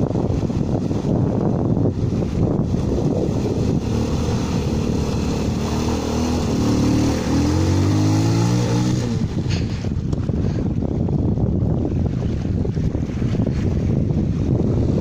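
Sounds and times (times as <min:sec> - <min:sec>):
water splashing: 0:00.0 - 0:10.8
motorcycle engine revving: 0:00.7 - 0:10.0.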